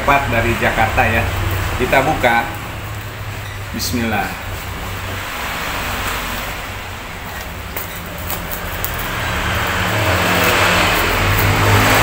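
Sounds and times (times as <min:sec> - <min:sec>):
motor vehicle engine drone: 0:00.0 - 0:12.0
scissors cutting plastic bag: 0:07.9 - 0:12.0.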